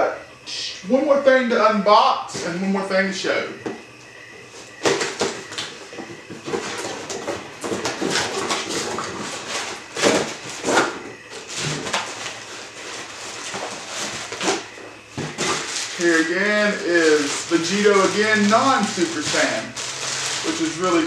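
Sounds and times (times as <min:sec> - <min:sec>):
cardboard box rustling and scraping: 0:04.5 - 0:21.0.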